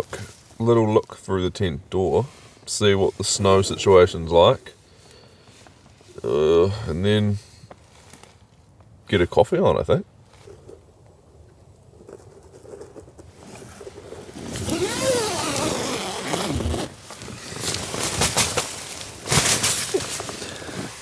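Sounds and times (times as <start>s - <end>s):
tent zipper pulled open: 12.0s - 18.6s
nylon fabric rustling: 13.3s - 21.0s.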